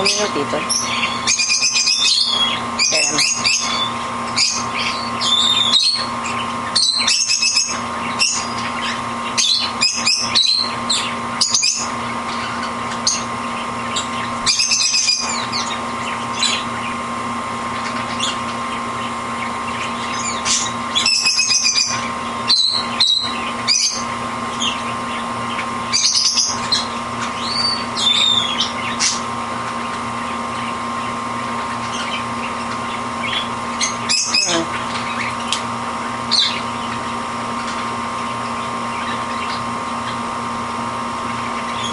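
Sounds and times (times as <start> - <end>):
bird chirping: 0.0 - 13.3, 25.9 - 29.2
electrical hum: 0.0 - 41.9.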